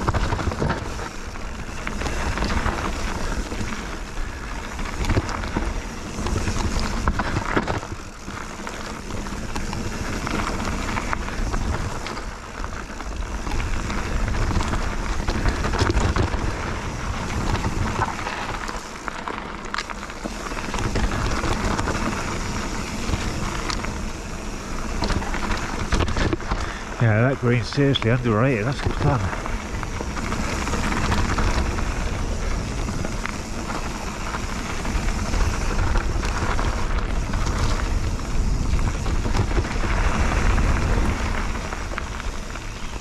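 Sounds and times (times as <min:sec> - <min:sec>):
bike rattling over bumps: 0:00.0 - 0:43.0
tyre and wind noise: 0:00.0 - 0:43.0.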